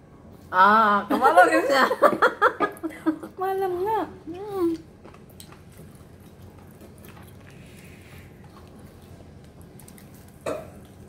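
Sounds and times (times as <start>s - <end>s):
soft chewing sounds: 4.3s - 11.0s.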